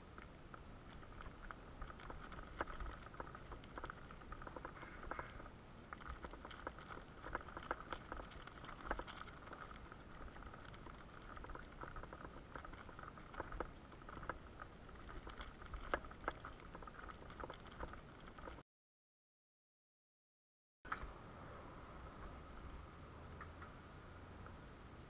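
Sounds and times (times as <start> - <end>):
bicycle tyres crunching on gravel: 0.0 - 18.6
stones clicking and rattling: 0.1 - 18.6.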